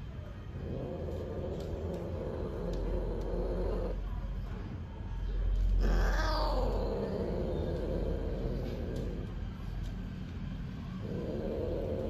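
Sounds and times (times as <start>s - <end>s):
cat yowling: 5.8s - 7.5s.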